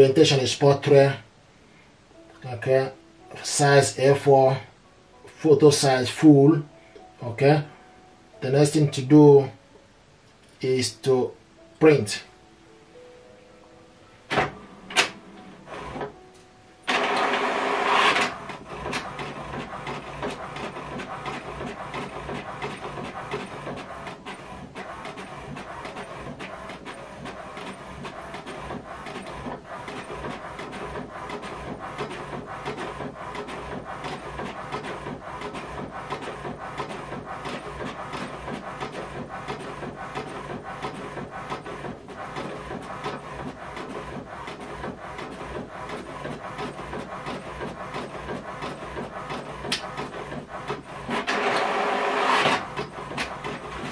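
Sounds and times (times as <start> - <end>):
printer clicking and running: 14.3 - 16.2, 16.8 - 53.9
printer start-up whir: 14.3 - 16.2, 16.8 - 53.9.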